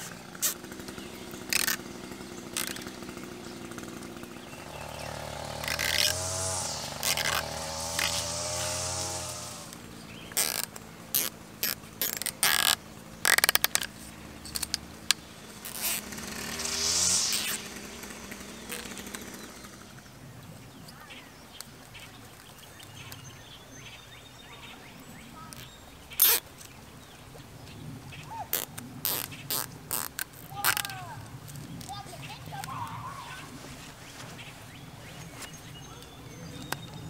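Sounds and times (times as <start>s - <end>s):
zip tie clicks: 0.4s - 0.6s, 1.5s - 1.8s, 5.6s - 6.2s, 10.3s - 13.9s, 28.6s - 31.0s.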